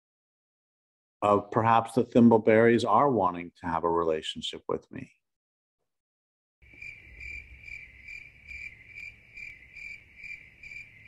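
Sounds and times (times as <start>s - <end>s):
cricket trilling: 6.6s - 11.0s.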